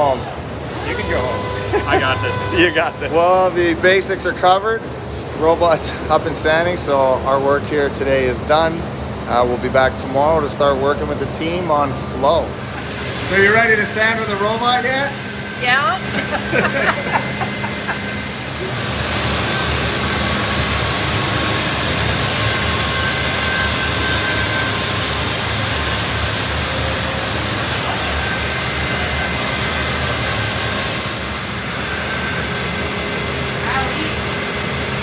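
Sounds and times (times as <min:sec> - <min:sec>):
orbital sander hissing: 0:00.7 - 0:03.6.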